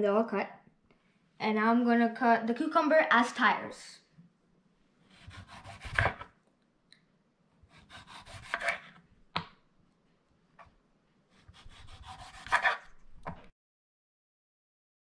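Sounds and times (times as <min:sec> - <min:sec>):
knife slicing cucumber: 0:05.1 - 0:06.3, 0:07.6 - 0:09.6, 0:11.3 - 0:13.5.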